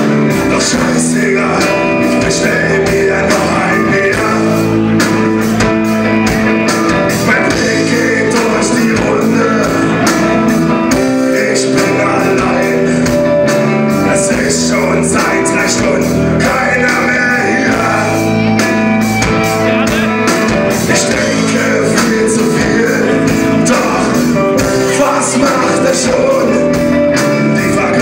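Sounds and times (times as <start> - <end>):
man singing: 0.0 - 5.7, 6.6 - 28.0
drums: 0.0 - 28.0
electric guitars: 0.0 - 28.0.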